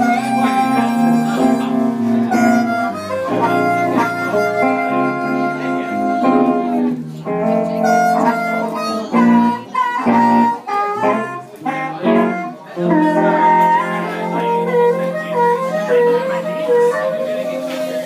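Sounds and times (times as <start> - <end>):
electric guitar: 0.0 - 18.0
harmonica: 0.0 - 18.0.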